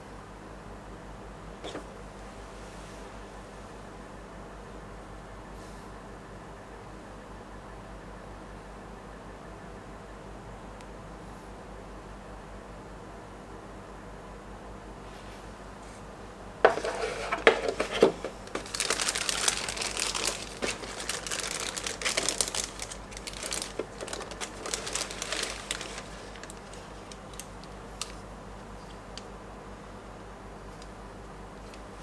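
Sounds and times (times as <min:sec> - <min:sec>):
packaging crinkling: 0:16.7 - 0:29.3.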